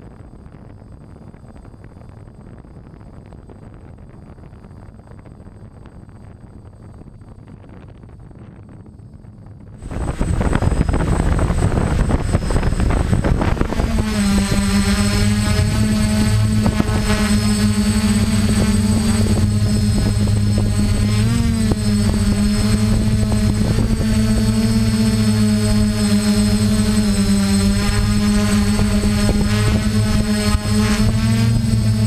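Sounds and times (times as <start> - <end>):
drone motors buzzing: 9.7 - 32.0.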